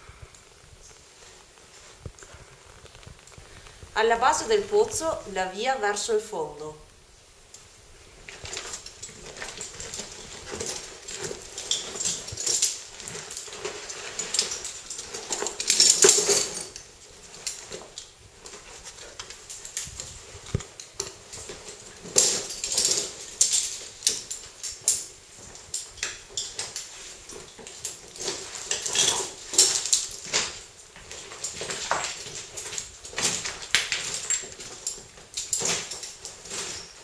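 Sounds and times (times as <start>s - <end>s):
metal harness hardware clinking: 8.2s - 37.0s.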